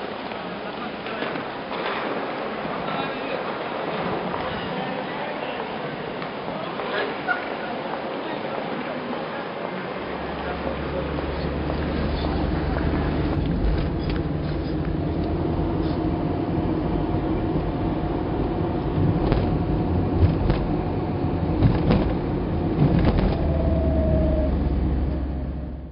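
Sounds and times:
car engine and road rumble: 10.0s - 25.9s.

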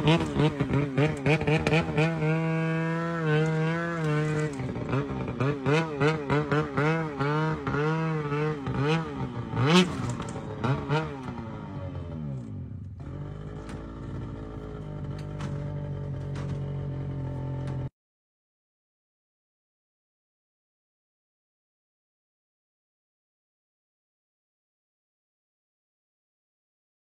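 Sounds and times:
snowmobile engine revving: 0.0s - 17.9s.

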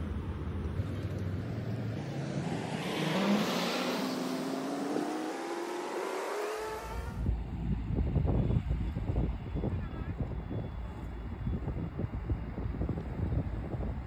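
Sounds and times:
vehicle engine accelerating: 0.0s - 8.3s.

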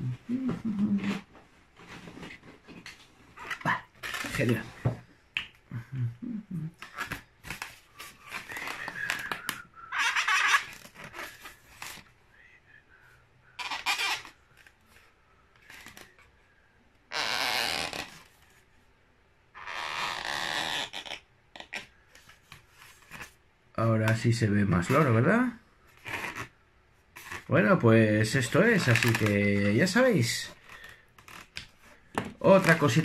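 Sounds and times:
balloon being handled: 0.0s - 5.6s, 6.7s - 12.2s, 13.6s - 15.0s, 24.1s - 33.0s
marker squeaking on balloon: 8.1s - 12.0s, 13.6s - 14.7s, 17.1s - 18.3s, 19.6s - 21.9s, 26.0s - 26.6s, 32.5s - 33.0s.

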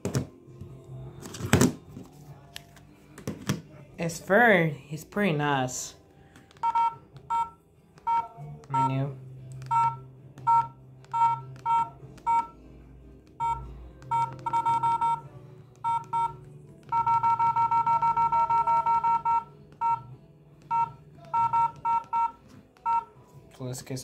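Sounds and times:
phone keypad beeps: 6.6s - 12.6s, 13.4s - 20.1s, 20.7s - 23.1s.

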